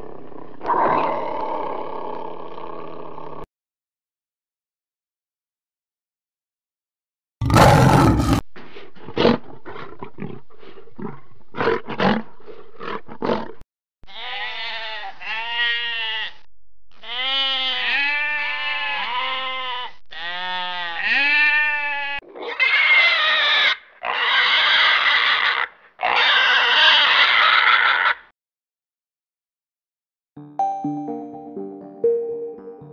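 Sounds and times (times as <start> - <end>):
long harsh animal calls: 17.0 - 28.3
rising and falling animal calls: 22.5 - 28.3.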